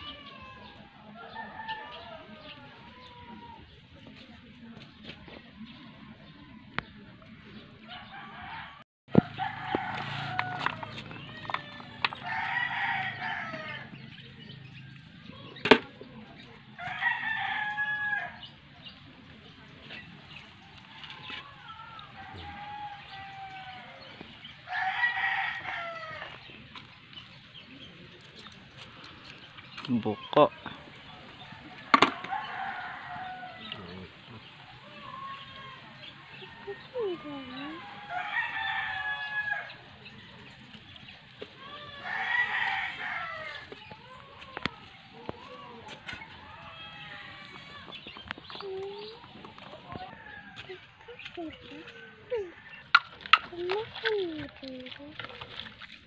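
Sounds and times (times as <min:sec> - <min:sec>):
rooster crowing: 0:07.9 - 0:13.9, 0:16.8 - 0:18.4, 0:24.7 - 0:26.4, 0:31.5 - 0:33.9, 0:35.0 - 0:39.8, 0:41.7 - 0:43.8.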